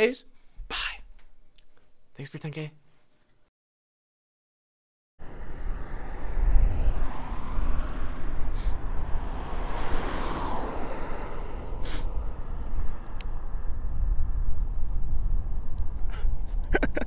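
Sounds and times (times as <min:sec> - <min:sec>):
car passing: 0:05.2 - 0:16.5
wind rumble on microphone: 0:05.2 - 0:17.0.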